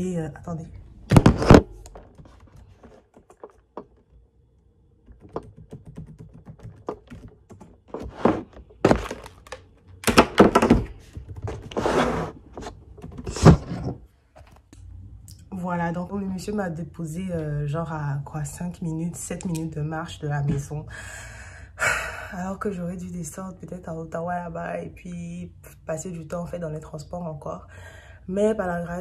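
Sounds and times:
knocks and thuds: 0:01.1 - 0:04.0, 0:05.1 - 0:11.8.

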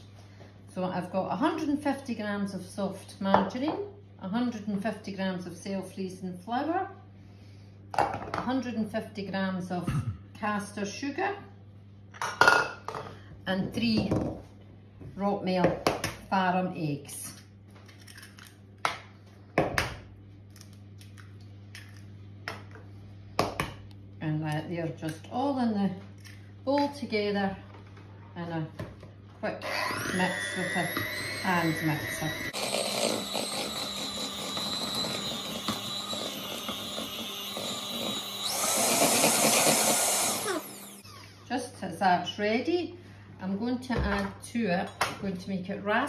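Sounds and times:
electric hand mixer whisking batter: 0:29.6 - 0:41.3.

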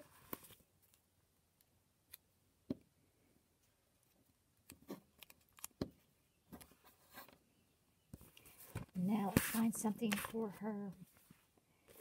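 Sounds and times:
paper clicks and crinkles: 0:04.0 - 0:05.8, 0:08.2 - 0:10.6.

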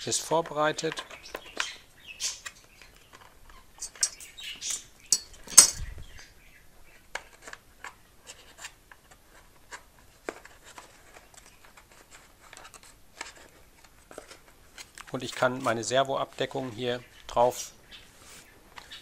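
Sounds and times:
fingers and metal tool clicking: 0:00.8 - 0:05.8.

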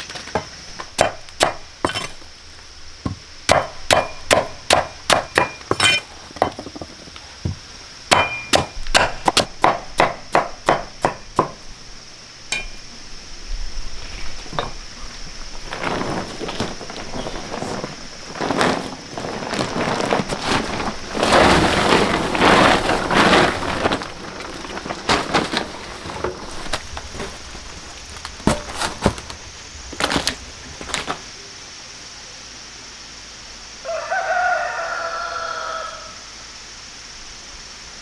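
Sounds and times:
knocking and rustling: 0:03.0 - 0:11.6, 0:28.3 - 0:29.4
rooster crowing: 0:33.8 - 0:36.3.

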